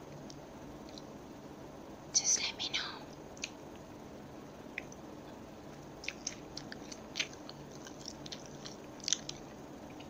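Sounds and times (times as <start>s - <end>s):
chewing sandwich: 5.6s - 10.0s
crunchy crackles: 5.7s - 10.0s.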